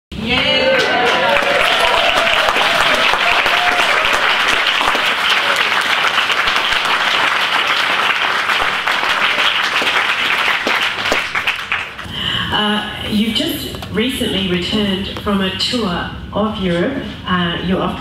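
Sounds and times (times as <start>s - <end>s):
audience applauding: 0.3s - 12.2s.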